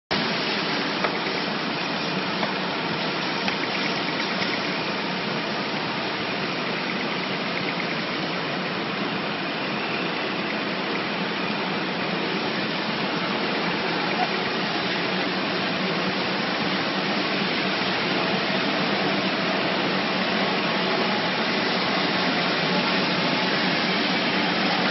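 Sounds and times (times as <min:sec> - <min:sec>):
steady machinery noise: 0:00.1 - 0:24.9.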